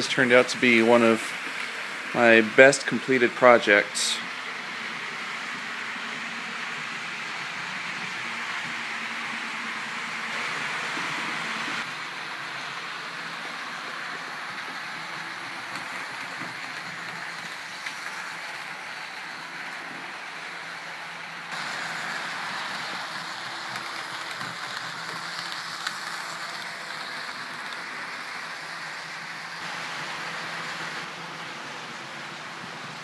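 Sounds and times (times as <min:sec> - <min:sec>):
model train whirring on track: 0:00.0 - 0:33.0.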